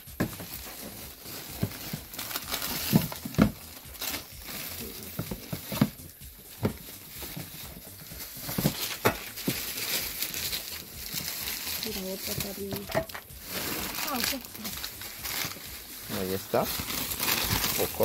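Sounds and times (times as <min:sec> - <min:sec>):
plastic bags rustling: 0:00.0 - 0:18.0
items knocking in plastic bin: 0:00.1 - 0:00.7, 0:01.5 - 0:03.7, 0:08.4 - 0:09.8.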